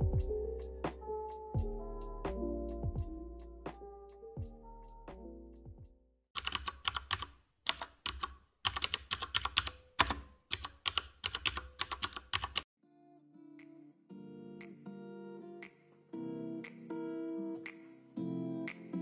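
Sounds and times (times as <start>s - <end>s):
rapid keyboard typing: 6.4s - 12.7s.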